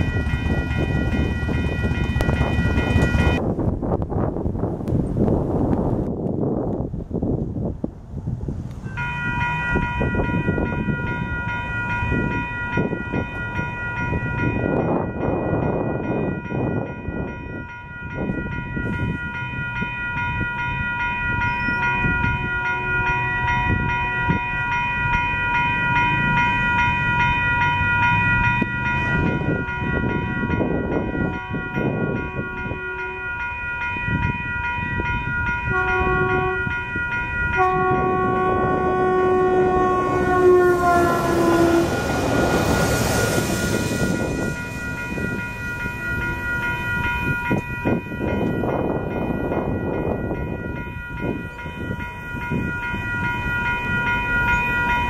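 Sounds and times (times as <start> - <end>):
steady ringing tone: 8.9 - 55.0
train rushing past: 18.2 - 55.0
train horn blasts: 21.6 - 24.4, 31.0 - 33.6, 35.0 - 45.4.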